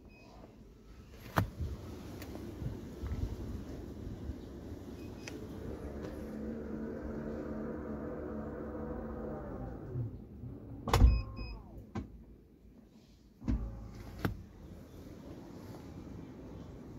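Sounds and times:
tailgate motor whining: 0:05.1 - 0:11.1.

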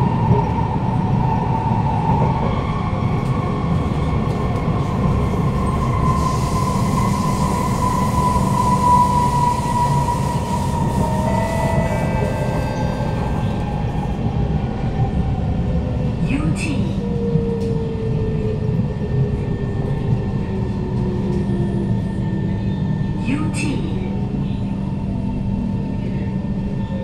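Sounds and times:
high train whine: 0:00.0 - 0:27.0
train wheels rumbling on rail: 0:00.0 - 0:27.0
whining tones shifting in pitch: 0:06.8 - 0:14.3.

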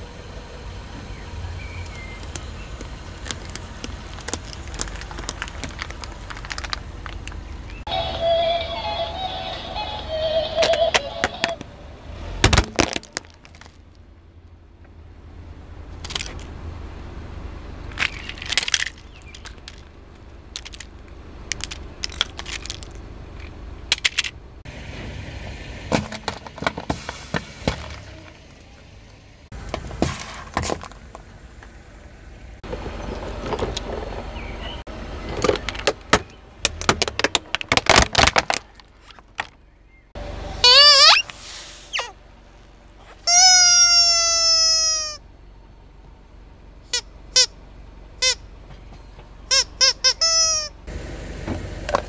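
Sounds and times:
low engine hum: 0:00.0 - 0:52.0
plastic toys snapping: 0:01.8 - 0:07.4, 0:16.0 - 0:16.5, 0:17.9 - 0:19.9, 0:20.5 - 0:24.3, 0:35.4 - 0:39.6
drink cans being crushed: 0:01.9 - 0:07.8, 0:12.5 - 0:13.8, 0:18.0 - 0:19.9, 0:20.6 - 0:23.0, 0:35.2 - 0:39.6.

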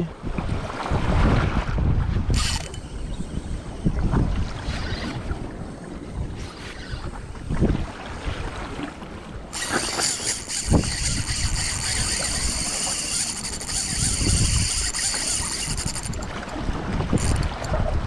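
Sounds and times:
wind noise: 0:00.0 - 0:18.0
fishing reel drag buzzing: 0:02.3 - 0:07.5, 0:09.5 - 0:17.6.

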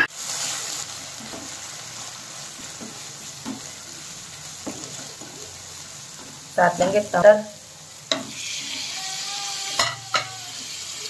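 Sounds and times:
food sizzling in hot oil: 0:00.0 - 0:11.0
spoon stirring in pan: 0:00.3 - 0:07.3.

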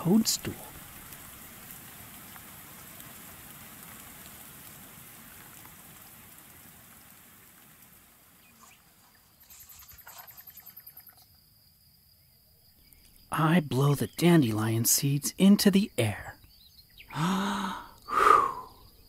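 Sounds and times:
faint rain: 0:00.0 - 0:19.0
rapid even chirping: 0:08.4 - 0:11.4.

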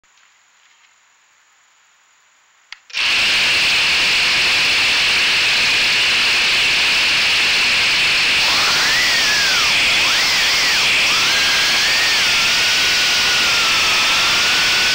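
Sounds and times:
click: 0:02.7 - 0:03.0
quadcopter motors whirring: 0:02.9 - 0:14.9.

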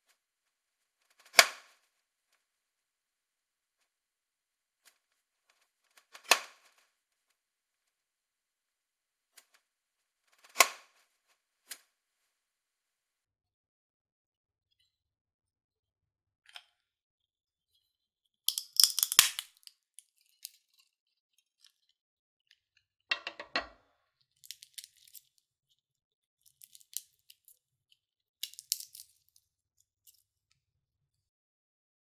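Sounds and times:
shell crackling pulled apart: 0:18.5 - 0:19.7, 0:24.4 - 0:25.3, 0:26.6 - 0:27.3, 0:28.4 - 0:29.2
nut shell cracking: 0:18.5 - 0:20.9, 0:24.4 - 0:25.4, 0:26.5 - 0:27.6, 0:28.4 - 0:29.4.

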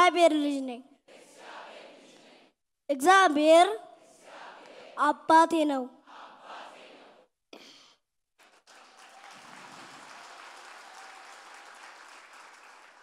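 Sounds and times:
faint applause: 0:08.4 - 0:13.0.

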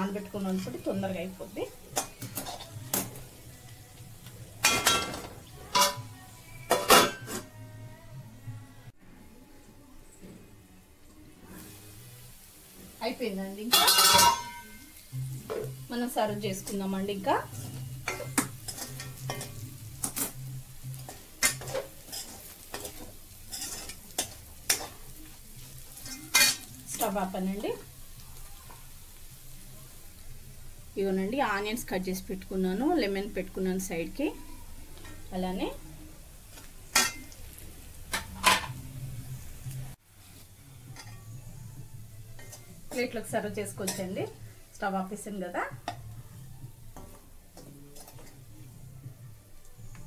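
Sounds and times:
light sizzle: 0:00.0 - 0:50.0
spoon stirring and scraping a pan: 0:00.2 - 0:03.6, 0:13.7 - 0:30.2, 0:36.4 - 0:39.0, 0:40.1 - 0:44.7, 0:45.7 - 0:48.8
spatula clinking on a pan: 0:04.6 - 0:06.1, 0:13.7 - 0:15.0, 0:21.0 - 0:25.0, 0:36.9 - 0:37.4
spoon clinking on a pan: 0:04.6 - 0:06.1, 0:13.7 - 0:15.0, 0:26.0 - 0:26.8, 0:36.9 - 0:37.4
metal lid clanking onto pan: 0:13.7 - 0:14.7.

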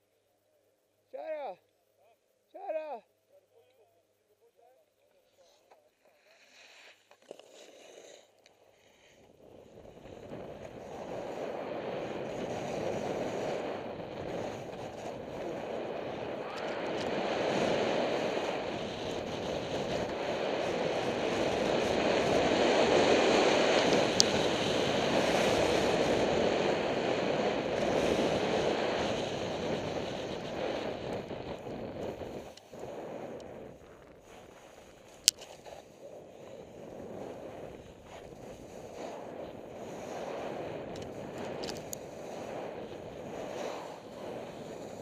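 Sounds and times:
skis hissing on snow: 0:05.4 - 0:45.0
wind rushing on microphone: 0:09.4 - 0:45.0.

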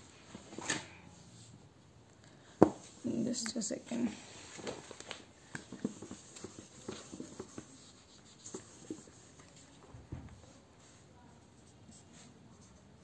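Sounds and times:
duster brushing across whiteboard: 0:05.7 - 0:09.8.

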